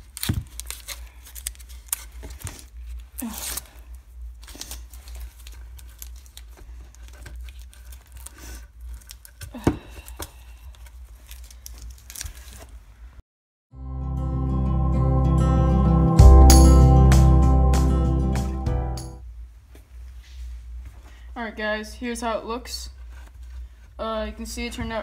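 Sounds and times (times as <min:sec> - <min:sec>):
tape scrunched in hands: 0:00.0 - 0:09.5.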